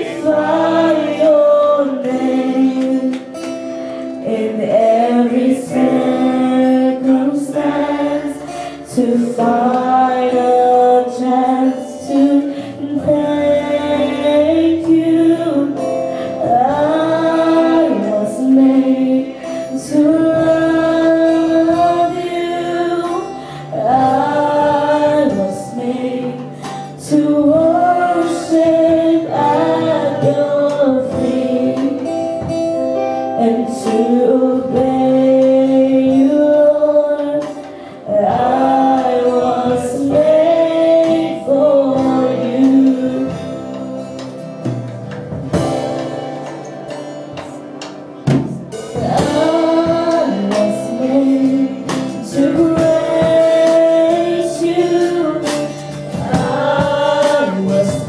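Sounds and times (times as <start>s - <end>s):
woman singing into microphone: 0.0s - 44.6s, 45.8s - 58.0s
drums: 0.0s - 58.0s
electric guitar: 0.0s - 58.0s.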